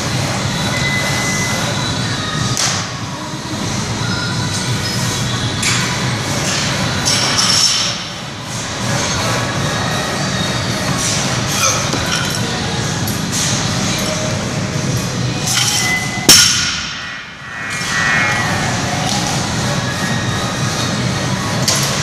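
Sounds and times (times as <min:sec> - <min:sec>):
metallic ringing: 0:15.7 - 0:20.3.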